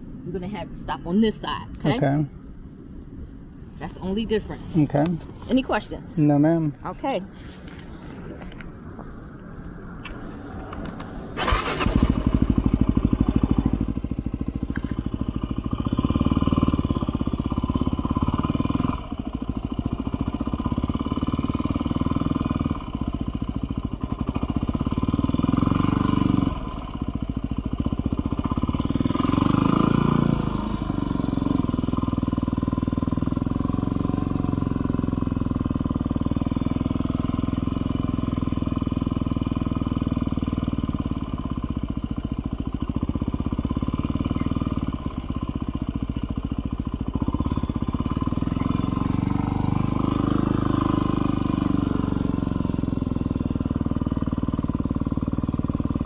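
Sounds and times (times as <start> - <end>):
motorcycle engine running in low gear: 10.8 - 56.0.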